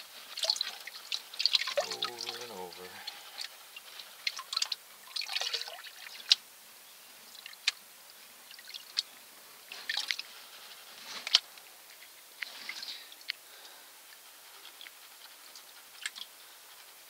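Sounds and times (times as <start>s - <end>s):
sharp water splashes: 0.0s - 6.4s
water sloshing in a plastic pan: 0.2s - 3.5s, 4.2s - 6.4s.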